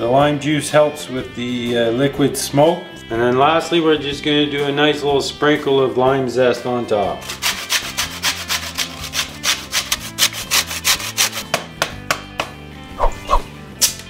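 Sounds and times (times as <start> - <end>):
lime rasping on a grater: 7.2 - 11.5.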